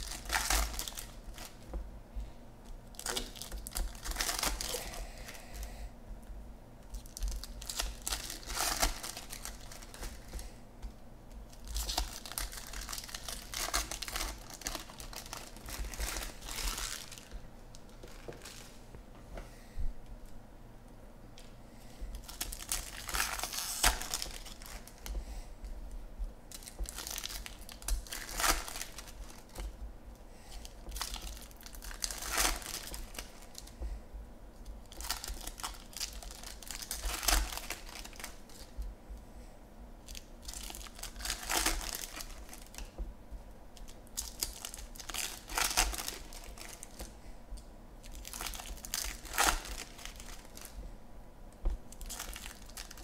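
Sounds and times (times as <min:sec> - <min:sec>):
foil wrappers tearing and crinkling: 0:00.0 - 0:01.6, 0:02.9 - 0:05.4, 0:06.9 - 0:10.4, 0:11.5 - 0:17.4, 0:22.1 - 0:25.2, 0:26.5 - 0:29.8, 0:30.5 - 0:33.8, 0:34.9 - 0:38.7, 0:40.0 - 0:42.9, 0:43.8 - 0:47.1, 0:48.0 - 0:50.8, 0:51.9 - 0:53.0.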